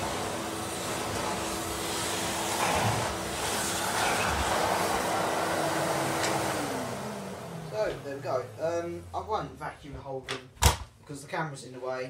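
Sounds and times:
vacuum cleaner running over carpet: 0.0 - 8.8.

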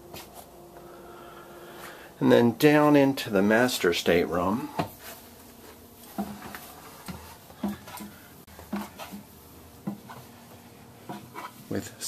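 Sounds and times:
footsteps on wooden steps: 4.7 - 11.4.

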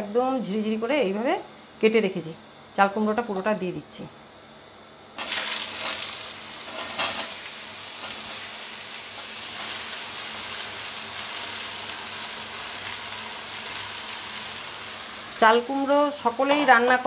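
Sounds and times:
vegetables sizzling in hot oil: 5.2 - 17.0.

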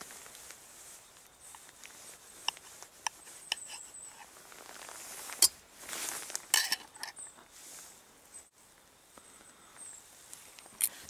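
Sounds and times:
fork and knife cutting pancakes: 2.4 - 4.3, 6.5 - 7.2
cutlery clinking on dish: 6.6 - 7.2.

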